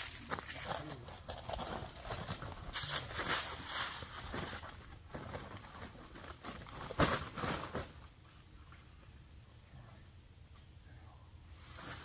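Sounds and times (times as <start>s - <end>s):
paper bag rustling and crinkling: 0.0s - 8.0s
footsteps through dry leaves: 2.3s - 4.8s.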